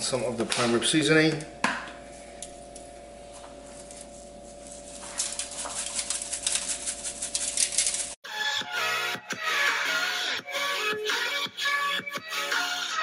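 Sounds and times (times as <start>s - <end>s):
steady hum: 0.0s - 8.2s
seasoning shaker rattling: 4.6s - 8.2s
music: 8.2s - 13.0s.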